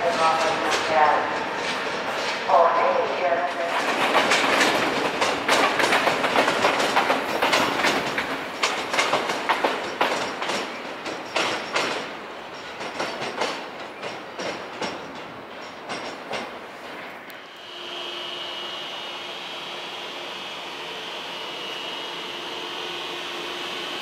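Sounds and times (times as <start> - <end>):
train wheels clacking over rail joints: 0.0 - 2.6, 3.5 - 17.1.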